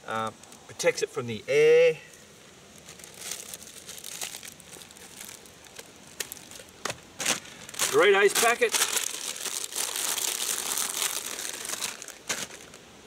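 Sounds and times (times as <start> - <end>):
plastic bag crinkling: 2.7 - 12.8
packaging crackles: 2.7 - 12.9.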